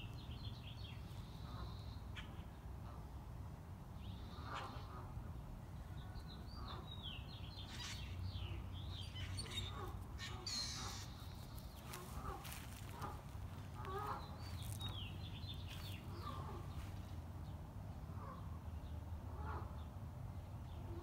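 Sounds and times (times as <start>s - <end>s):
birds calling: 6.5s - 17.2s.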